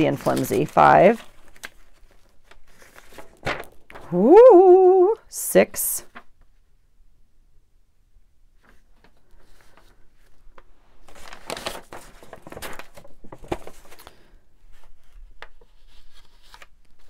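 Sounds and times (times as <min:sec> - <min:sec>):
paper rustling and sliding: 0:00.0 - 0:04.0, 0:08.6 - 0:17.0.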